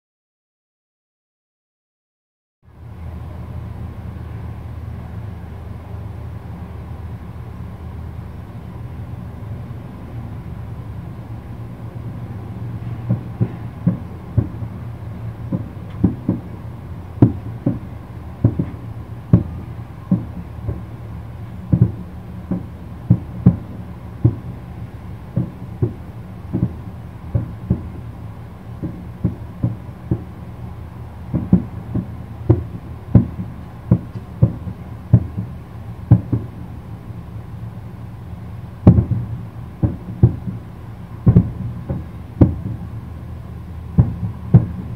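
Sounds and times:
steady low hum: 0:02.6 - 0:44.9
distant fireworks booms: 0:11.5 - 0:44.9.

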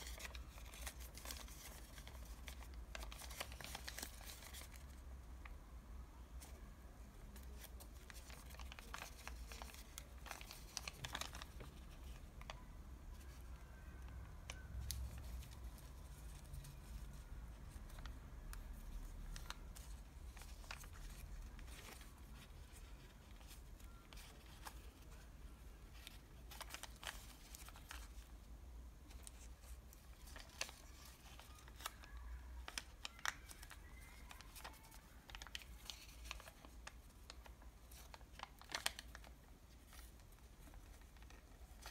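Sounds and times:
paper bag crinkling: 0:00.0 - 0:05.0, 0:07.4 - 0:12.6, 0:25.9 - 0:28.3, 0:29.1 - 0:41.9.

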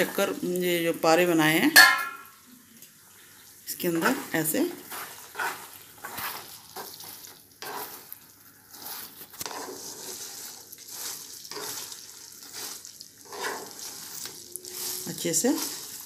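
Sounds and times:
syrup bubbling and sizzling in pan: 0:00.0 - 0:16.0
wooden spatula stirring: 0:03.2 - 0:16.0.

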